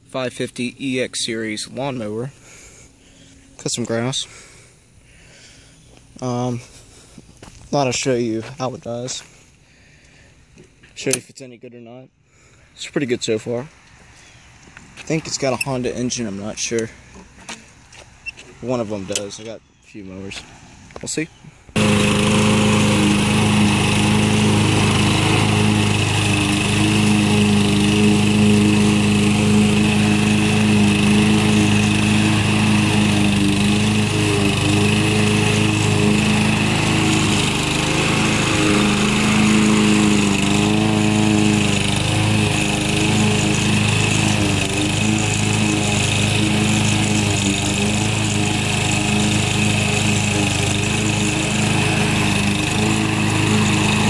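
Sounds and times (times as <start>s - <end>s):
lawn mower engine running: 21.7s - 54.0s.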